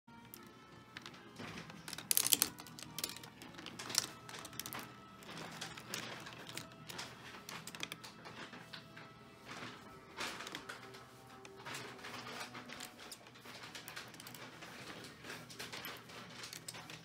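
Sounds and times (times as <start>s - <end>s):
marbles clicking on wooden run: 0.3s - 8.6s.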